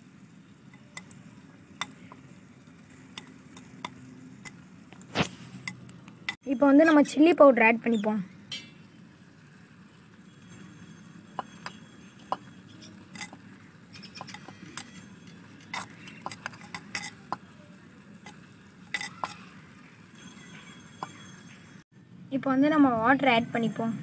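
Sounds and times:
metal ladle clicking on clay pot: 0:13.1 - 0:13.4, 0:14.0 - 0:15.0, 0:15.6 - 0:17.5, 0:18.2 - 0:19.5.

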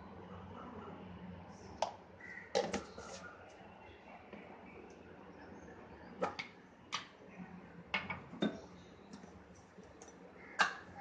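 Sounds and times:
kitchen items clinking and knocking: 0:02.5 - 0:03.2, 0:08.0 - 0:09.2.

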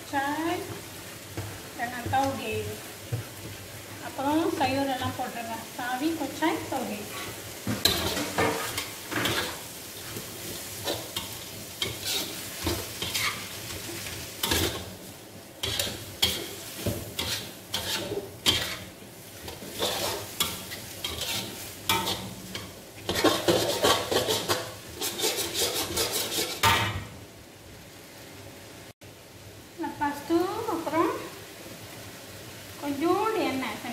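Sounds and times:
food sizzling: 0:00.0 - 0:33.9
metal spatula scraping a wok: 0:06.5 - 0:15.0, 0:15.6 - 0:27.0.

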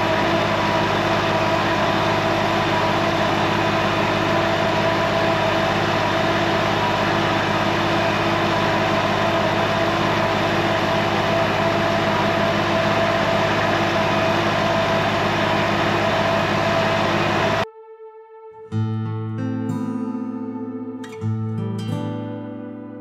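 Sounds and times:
diesel truck engine idling: 0:00.0 - 0:17.6.

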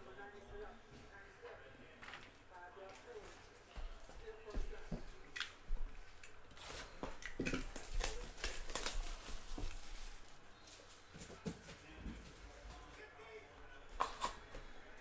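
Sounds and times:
cellophane crinkling: 0:06.5 - 0:11.0.

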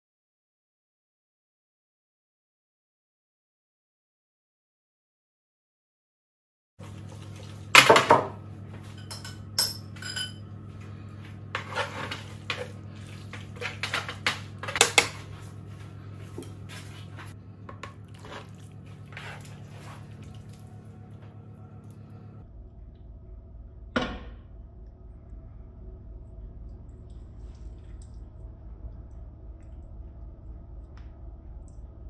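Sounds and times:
steady low hum: 0:06.8 - 0:32.0.

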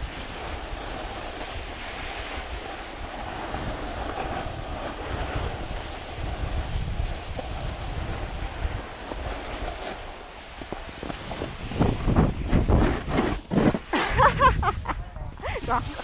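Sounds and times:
snowboard carving over snow: 0:00.0 - 0:16.0
wind buffeting microphone: 0:00.0 - 0:16.0.

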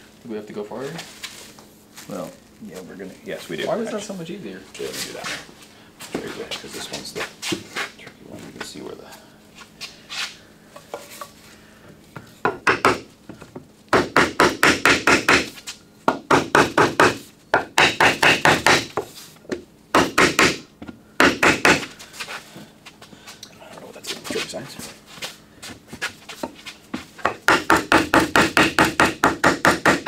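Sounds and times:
hammer tapping on wooden block: 0:12.4 - 0:13.0, 0:13.9 - 0:15.5, 0:16.1 - 0:20.6, 0:27.2 - 0:30.0.

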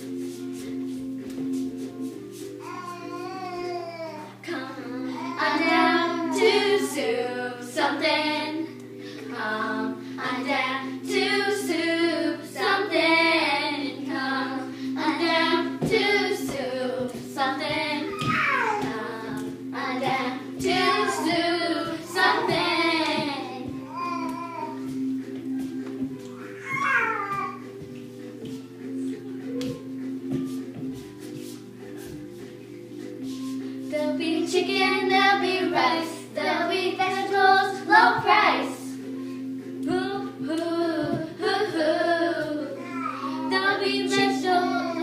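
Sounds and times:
steady held music tones: 0:00.0 - 0:45.0
children singing: 0:02.7 - 0:25.2, 0:33.9 - 0:39.1, 0:39.9 - 0:45.0.

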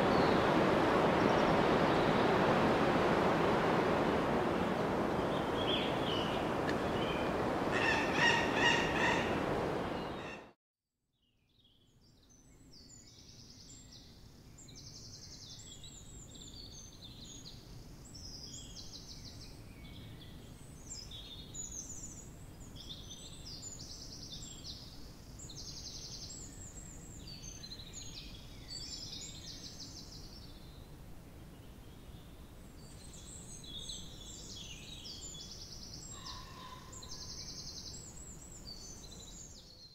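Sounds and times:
steady rushing noise: 0:00.0 - 0:10.2
birds singing and calling: 0:05.1 - 0:10.5, 0:33.1 - 0:39.9.

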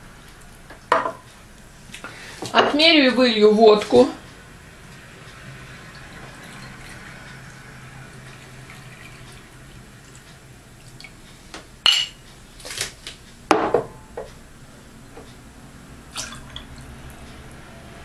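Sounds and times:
liquid pouring: 0:05.4 - 0:11.2, 0:16.1 - 0:16.9
glass clinking: 0:11.9 - 0:12.2.

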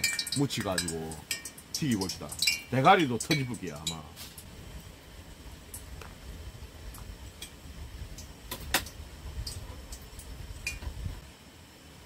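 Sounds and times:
metal tongs clinking: 0:00.0 - 0:04.1.

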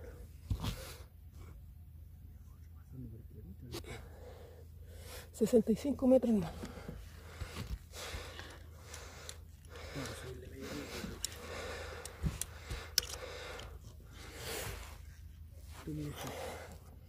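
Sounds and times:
breathing: 0:03.8 - 0:05.4, 0:06.4 - 0:15.1, 0:16.1 - 0:17.0
rifle handling noise: 0:12.0 - 0:13.7.

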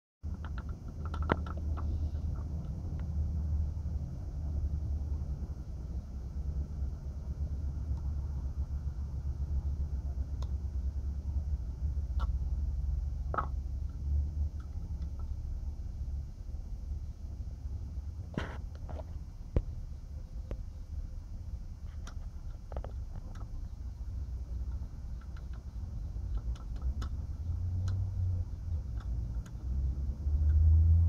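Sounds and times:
steady low rumble: 0:00.2 - 0:31.0.

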